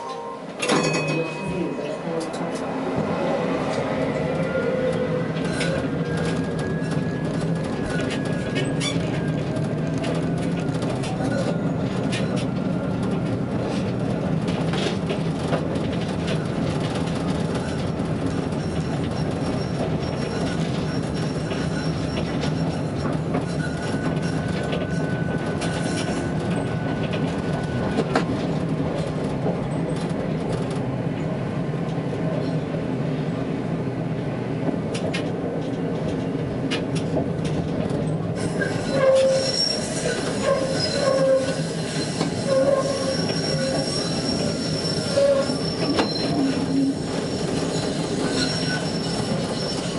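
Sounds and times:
tram wheels squealing: 0:00.0 - 0:30.6, 0:37.1 - 0:49.9
tram motors and wheels humming: 0:00.0 - 0:49.9
clicks of wheels on rail: 0:02.1 - 0:32.8, 0:34.6 - 0:49.9.

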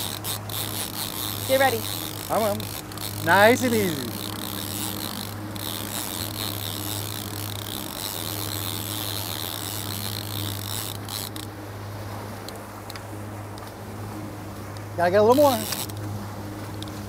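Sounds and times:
fishing reel whirring: 0:00.0 - 0:11.6, 0:15.2 - 0:17.0
boat engine running: 0:00.0 - 0:17.0
water rushing: 0:00.0 - 0:17.0.

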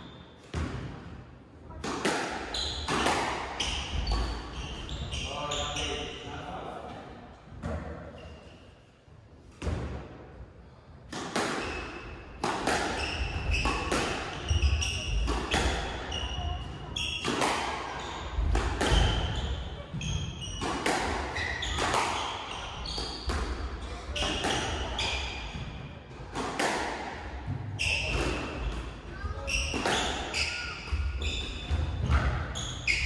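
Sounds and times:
squash ball hit by rackets: 0:01.8 - 0:04.4, 0:11.1 - 0:28.9, 0:29.6 - 0:32.5
court shoes squeaking: 0:01.8 - 0:06.2, 0:07.6 - 0:08.8, 0:11.4 - 0:26.9, 0:27.6 - 0:33.0.

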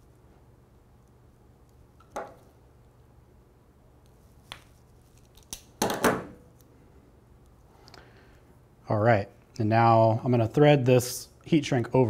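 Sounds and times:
wire connectors clicking: 0:04.0 - 0:05.8.

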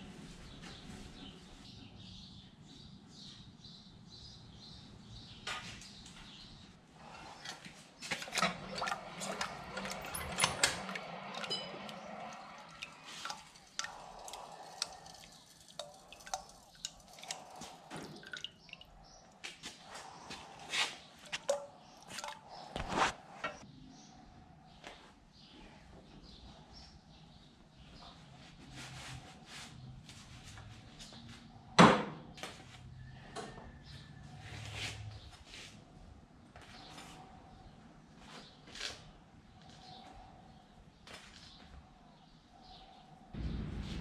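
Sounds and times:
quench liquid crackling and popping: 0:11.3 - 0:19.6.

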